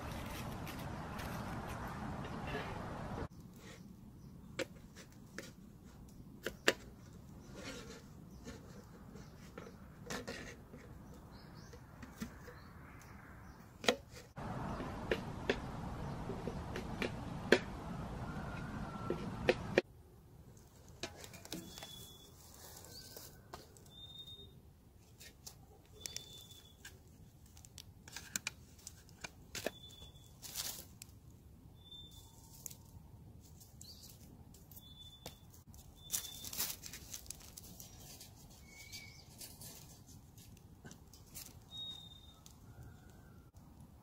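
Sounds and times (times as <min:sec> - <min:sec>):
dry leaves rustling: 0:00.0 - 0:03.2, 0:20.5 - 0:24.4, 0:25.0 - 0:43.1
gear being handled: 0:33.5 - 0:41.8.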